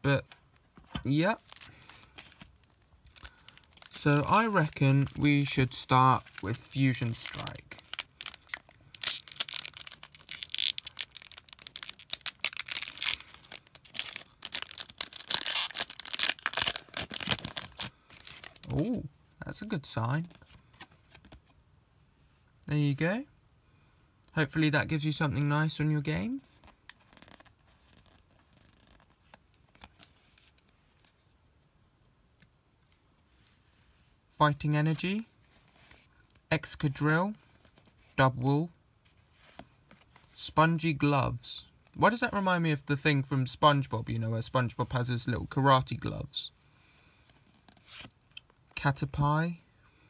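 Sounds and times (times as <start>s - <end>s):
trading cards rustling and clicking: 0.7s - 19.0s, 26.6s - 31.2s
foil wrapper tearing and crinkling: 1.4s - 18.9s.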